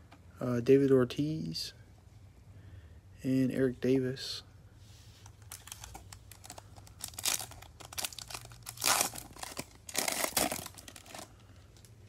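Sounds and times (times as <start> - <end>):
foil wrapper crinkling and tearing: 5.4 - 11.9.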